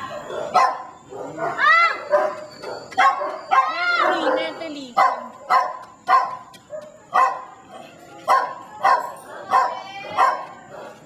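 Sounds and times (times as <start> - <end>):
dog barking: 0.0 - 11.0.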